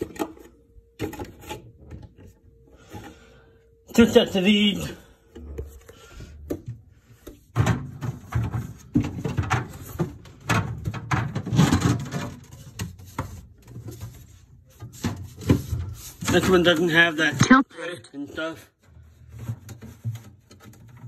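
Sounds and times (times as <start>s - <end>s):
fridge door and shelves handled: 5.4s - 17.1s.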